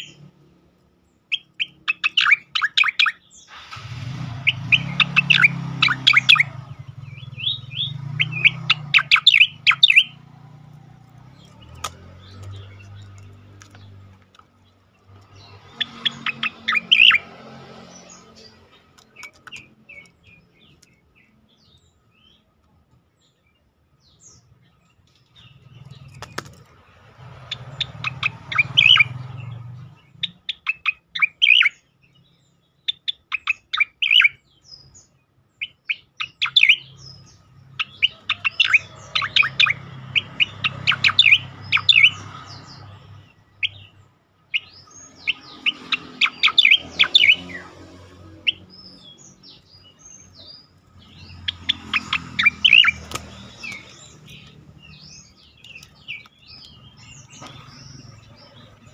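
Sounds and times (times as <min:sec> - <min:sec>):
bird chattering song: 0:00.0 - 0:58.9
high whistled bird notes: 0:01.3 - 0:10.3, 0:15.3 - 0:18.4, 0:27.5 - 0:29.5, 0:35.6 - 0:43.0, 0:44.6 - 0:58.6.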